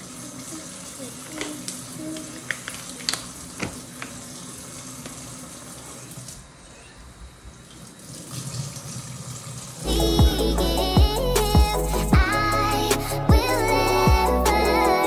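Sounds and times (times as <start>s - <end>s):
water running from a tap: 0.0s - 6.6s, 7.5s - 9.9s.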